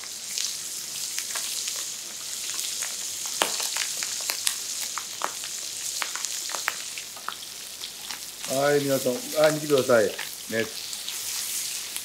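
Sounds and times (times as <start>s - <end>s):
chicken sizzling in a frying pan: 0.0s - 12.0s.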